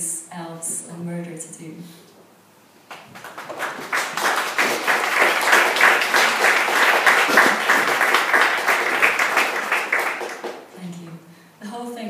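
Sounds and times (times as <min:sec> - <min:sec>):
audience applauding: 0:02.9 - 0:10.8.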